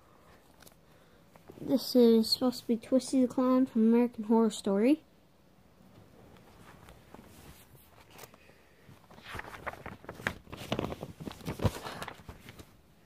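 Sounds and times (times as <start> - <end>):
paper pages rustling and flapping: 6.3 - 12.8.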